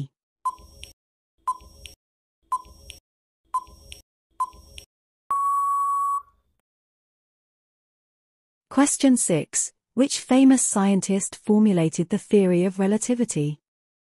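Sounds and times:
long steady beep: 5.3 - 6.3.

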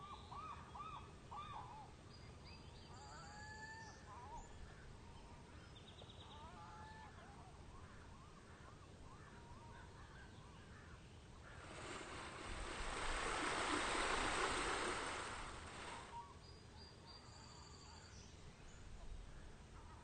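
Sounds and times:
faint bird chirps: 7.8 - 20.0
fountain water splashing: 11.6 - 16.2.

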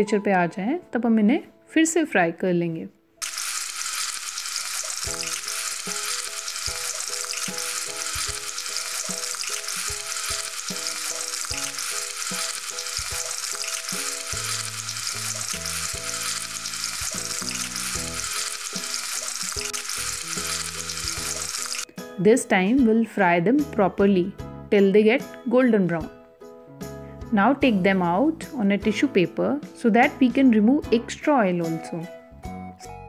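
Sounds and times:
potatoes deep-frying in oil: 3.2 - 21.9.

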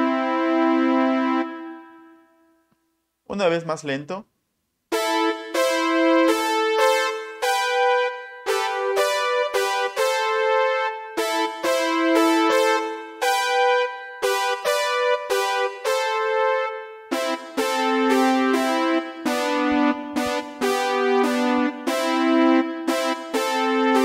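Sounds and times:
synth brass chords on keyboard: 0.0 - 2.7, 4.9 - 24.0.

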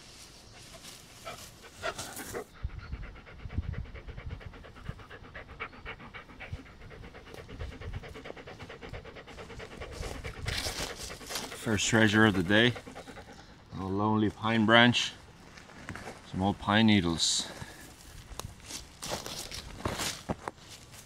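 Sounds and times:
dog panting rapidly: 0.7 - 13.9.

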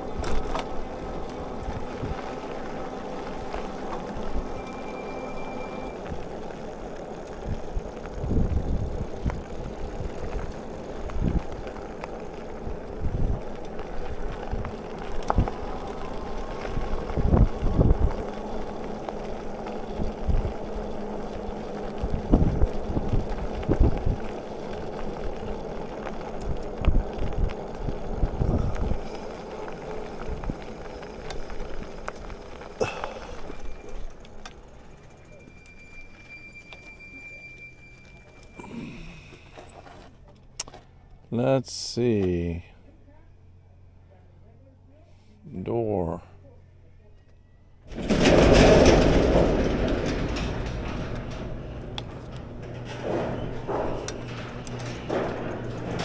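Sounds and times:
wind buffeting microphone: 0.0 - 4.5, 7.3 - 33.8
road noise: 0.0 - 56.0.

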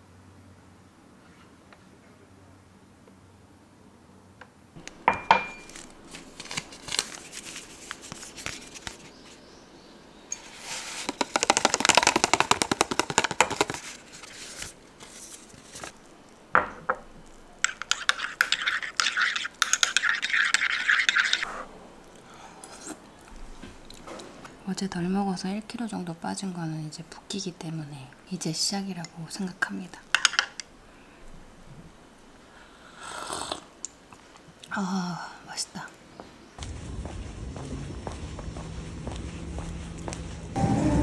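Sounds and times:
clinks against ceramic cup: 5.1 - 5.7
sachets handled: 5.6 - 9.4.

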